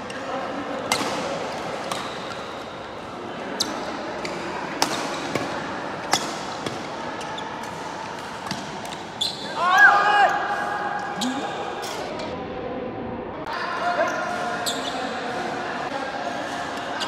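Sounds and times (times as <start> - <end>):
background noise: 0.0 - 17.0
racket hitting shuttlecock: 0.8 - 2.5, 3.6 - 7.0.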